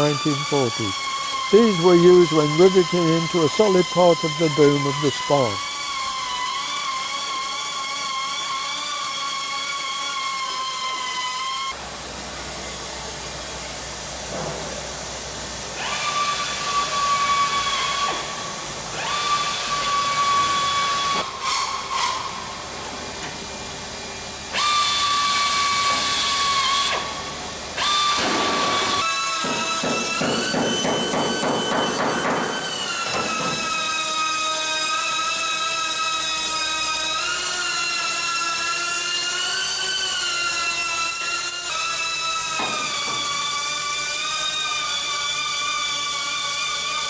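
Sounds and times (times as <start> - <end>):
air tool whining: 0.0 - 47.0.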